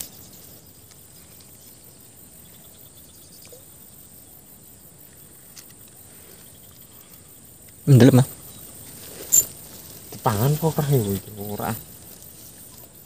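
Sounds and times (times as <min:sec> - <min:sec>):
insects chirring: 0:00.0 - 0:13.0
faint clicks: 0:05.1 - 0:07.8.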